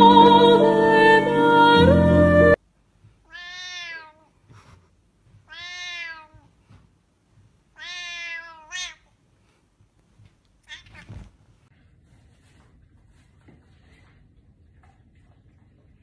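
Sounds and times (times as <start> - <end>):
music: 0.0 - 2.6
cat meowing: 3.3 - 4.3, 5.5 - 6.5, 7.8 - 9.1, 10.6 - 11.3.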